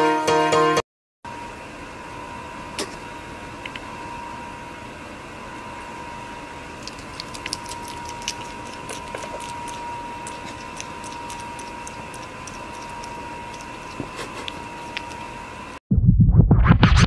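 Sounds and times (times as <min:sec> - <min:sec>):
hedgehog chewing food: 0:06.7 - 0:15.4.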